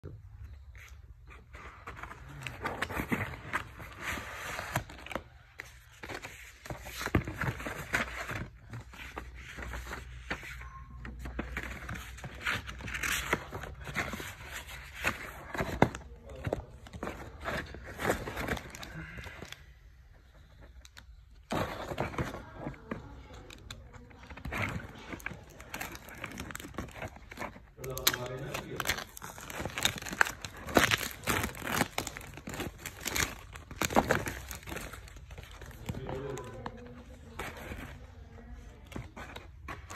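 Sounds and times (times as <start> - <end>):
cellophane wrap crinkling: 20.6 - 39.9
cardboard tearing: 24.0 - 36.6.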